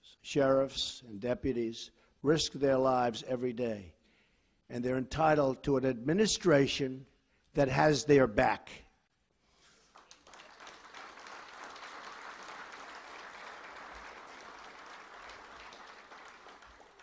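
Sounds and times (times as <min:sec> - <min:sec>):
audience applauding: 0:09.7 - 0:17.0.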